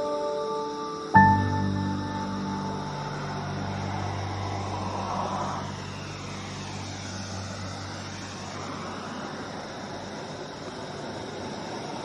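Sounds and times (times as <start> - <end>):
road traffic noise: 0.0 - 12.0
low sustained note: 1.2 - 8.1
vehicle passing by: 1.3 - 12.0.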